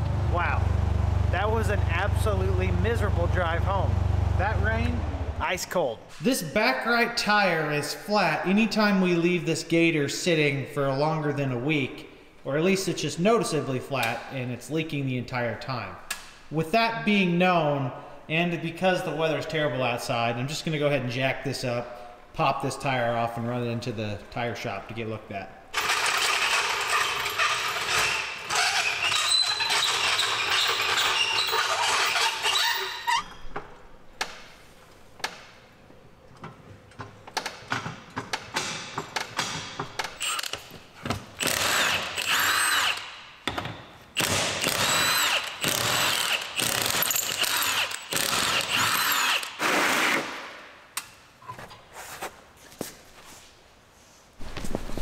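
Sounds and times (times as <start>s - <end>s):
hand tools clicking and knocking: 36.3s - 50.2s
power tool whining: 41.4s - 43.1s, 44.2s - 50.2s.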